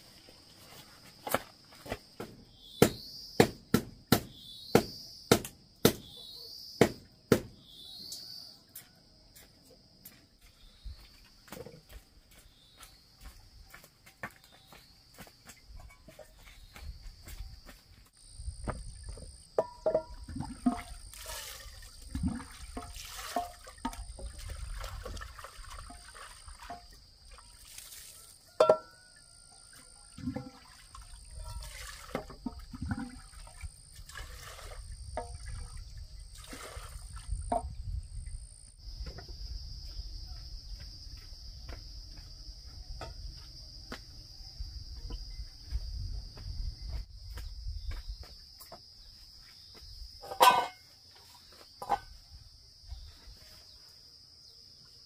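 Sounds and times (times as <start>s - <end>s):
pulsing insect chirp: 0.0s - 9.0s, 9.9s - 55.0s
insects buzzing: 0.0s - 28.6s
pot and dipper knocking: 18.6s - 21.0s, 22.1s - 24.4s, 28.6s - 29.0s, 30.2s - 30.6s, 32.1s - 33.2s, 50.2s - 50.8s
water poured into metal pot: 19.8s - 28.1s, 30.2s - 37.3s.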